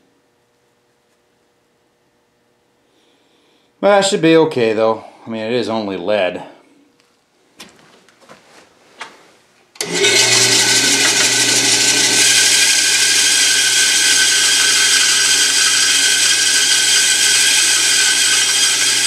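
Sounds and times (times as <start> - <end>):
band saw cutting: 9.8 - 19.0.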